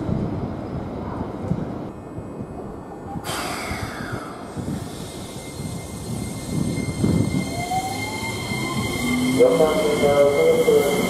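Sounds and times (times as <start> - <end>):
electric train inverter whine: 0.0 - 11.0.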